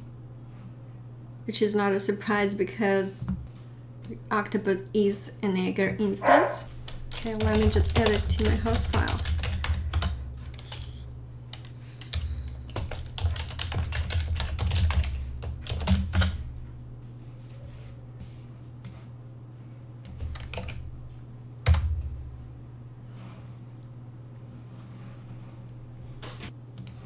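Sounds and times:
steady low hum: 0.0s - 27.0s
typing on computer keyboard: 7.1s - 10.9s, 11.6s - 16.3s, 20.1s - 20.8s.

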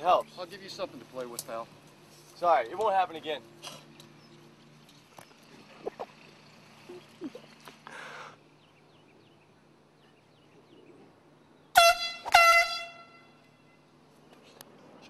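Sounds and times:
air horn blasts: 11.7s - 13.8s.

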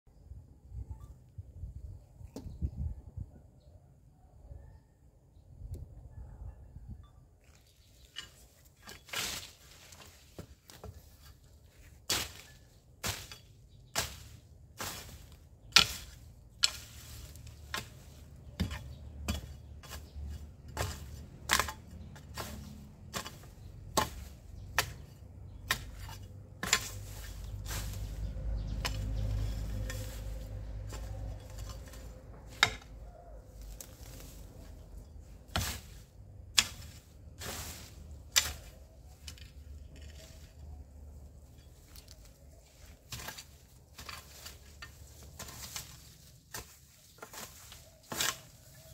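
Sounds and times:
hoe chopping into soil: 8.2s - 11.4s, 12.0s - 40.3s, 43.0s - 48.9s.

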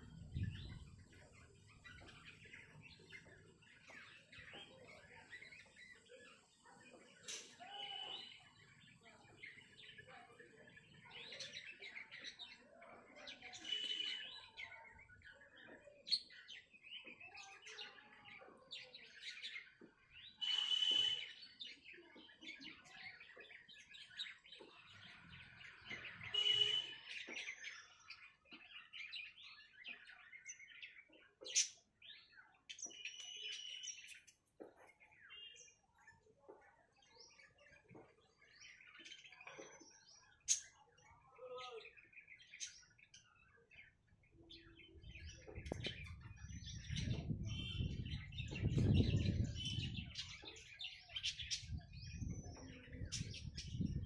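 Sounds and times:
birds chirping: 0.0s - 54.0s
loud bird call: 20.4s - 21.4s, 26.2s - 27.0s.

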